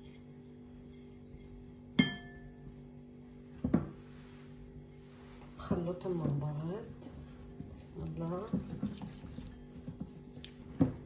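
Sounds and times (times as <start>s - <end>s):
faint steady hum: 0.0s - 11.0s
plate clinking against glass bowl: 2.0s - 2.5s.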